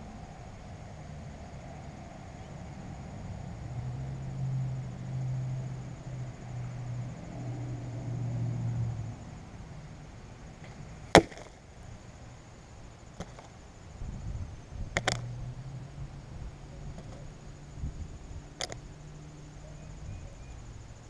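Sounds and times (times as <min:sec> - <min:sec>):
arrow striking target crack: 0:11.1 - 0:11.5.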